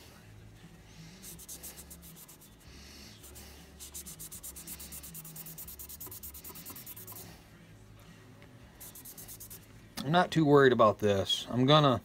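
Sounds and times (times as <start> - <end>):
cloth rubbing on metal part: 1.2 - 7.3, 8.8 - 9.7.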